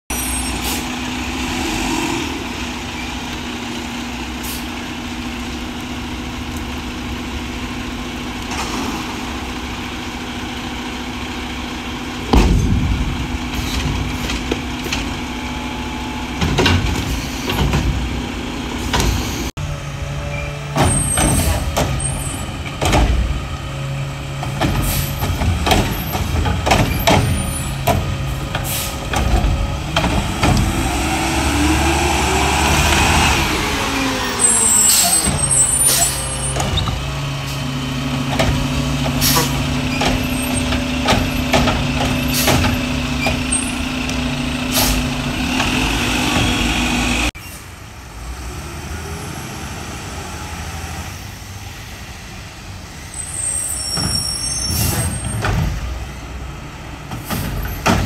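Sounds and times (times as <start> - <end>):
diesel engine running: 0.1 - 58.0
loud bang: 12.3 - 14.2
metal clanks and knocks: 12.3 - 15.2, 16.4 - 18.2, 38.2 - 43.7
air brake hiss: 28.6 - 29.0, 44.7 - 45.0.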